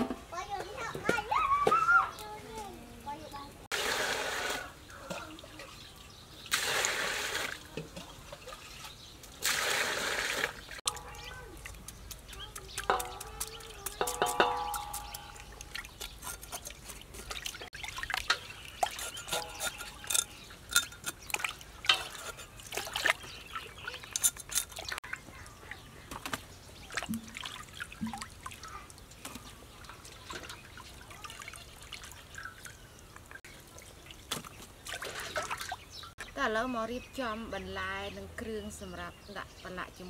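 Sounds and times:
water splashing in a steel basin: 3.7s - 36.2s
knife scraping fish: 16.0s - 17.4s, 18.8s - 21.2s, 22.0s - 22.6s.

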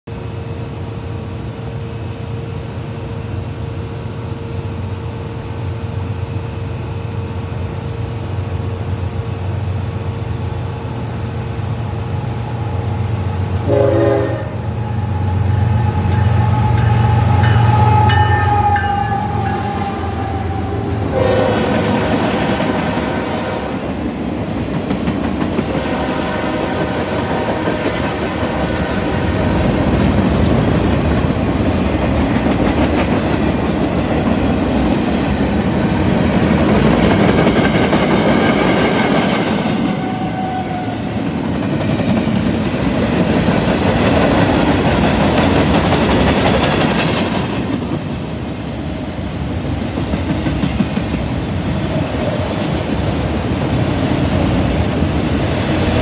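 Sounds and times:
diesel train engines rumbling: 0.0s - 56.0s
locomotive horn: 13.5s - 23.9s, 25.7s - 28.0s
train wheels clacking on rail joints: 24.4s - 26.0s, 29.8s - 40.2s, 41.4s - 48.2s, 49.8s - 53.8s.

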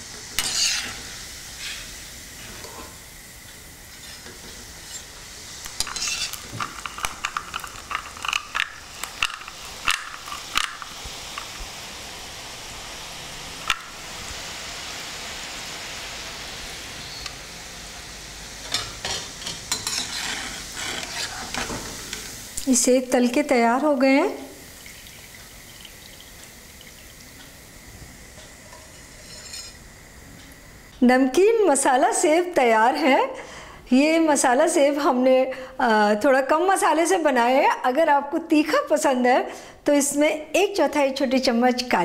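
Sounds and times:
food deep-frying in hot oil: 0.0s - 33.7s
metal utensils clattering on pan: 0.4s - 1.0s, 5.8s - 10.8s, 18.7s - 21.8s, 28.8s - 29.8s.

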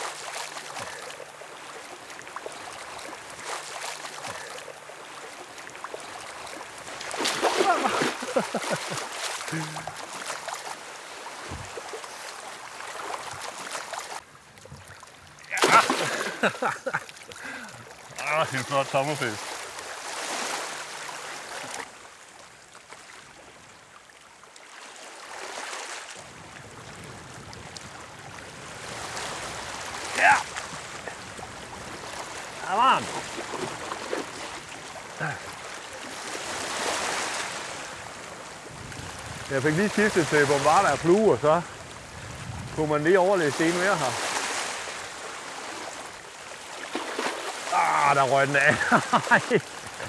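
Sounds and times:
sea water lapping around legs: 0.0s - 50.0s
small water splashes: 0.0s - 50.0s
wind: 0.0s - 50.0s.

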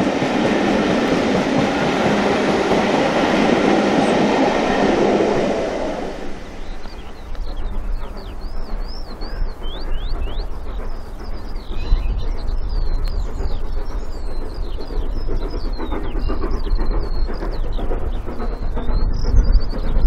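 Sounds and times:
distant steam locomotive: 0.0s - 20.0s
birds chirping and singing: 6.6s - 20.0s.

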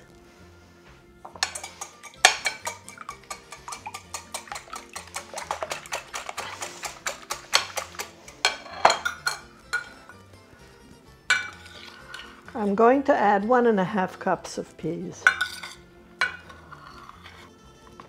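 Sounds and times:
whisk beating eggs in glass bowl: 1.4s - 8.6s.

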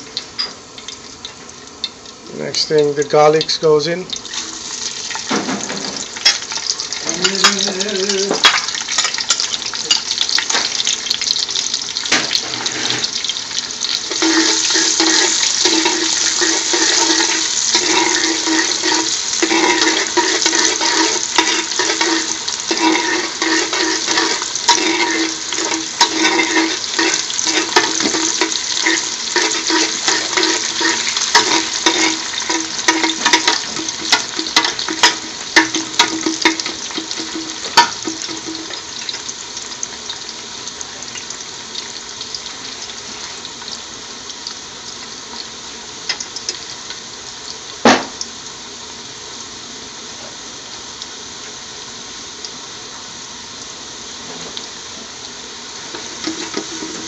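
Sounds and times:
garlic sizzling in oil: 0.0s - 57.0s
spoon clicking and scraping pot: 14.1s - 38.8s, 56.2s - 57.0s.

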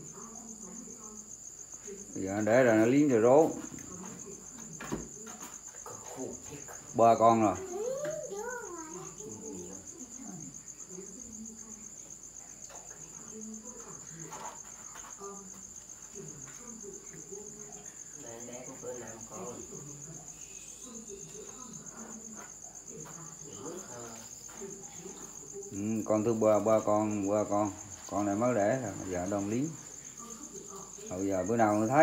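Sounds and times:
faint murmur of voices: 0.0s - 32.0s
insects chirring: 0.0s - 32.0s.

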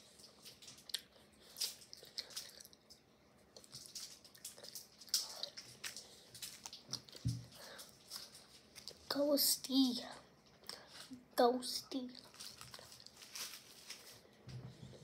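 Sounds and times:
wet chewing and lip-smacking: 0.2s - 9.0s.

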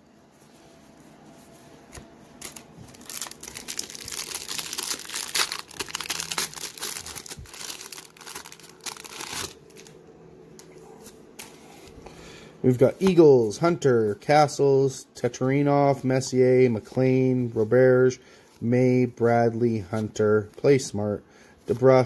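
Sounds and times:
foil wrapper crinkling and tearing: 2.4s - 10.0s.

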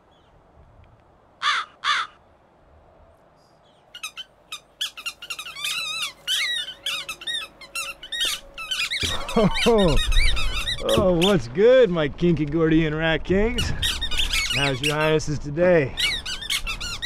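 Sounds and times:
crow cawing: 1.4s - 2.2s
rats squeaking: 4.0s - 11.4s, 13.6s - 15.2s, 16.0s - 17.0s.

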